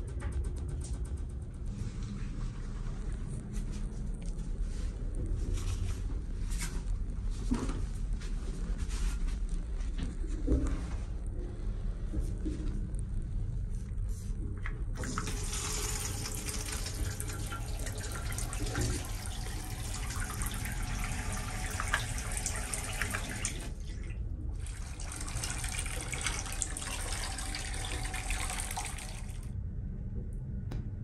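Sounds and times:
tap water running into sink: 0:15.0 - 0:29.5.

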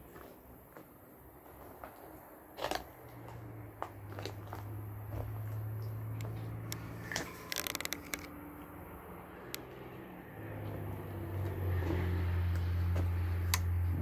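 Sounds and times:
crackling: 0:05.8 - 0:08.8
sharp clicks: 0:06.2 - 0:08.4.

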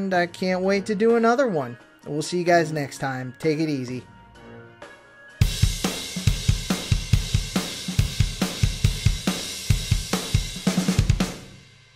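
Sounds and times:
bass drum and snare beat: 0:05.4 - 0:11.6
cymbals and hi-hat: 0:05.4 - 0:11.9.

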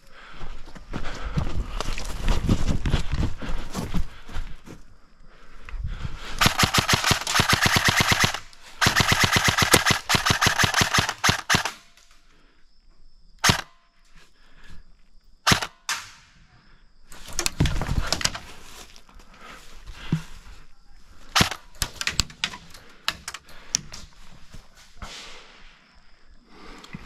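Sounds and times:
airsoft rifle firing: 0:06.4 - 0:12.0, 0:13.4 - 0:13.7, 0:15.4 - 0:16.2, 0:21.3 - 0:22.0.

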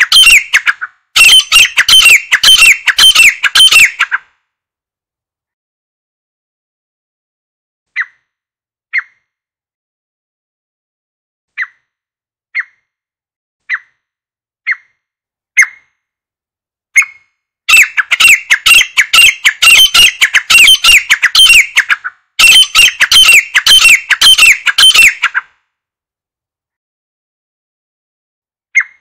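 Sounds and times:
francolin calling: 0:00.0 - 0:04.1, 0:17.0 - 0:25.4.

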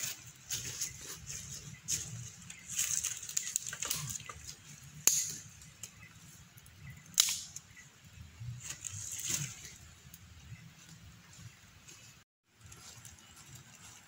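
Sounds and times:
dry firewood cracking: 0:00.0 - 0:07.8
dry leaves and twigs rustling: 0:00.0 - 0:14.0.

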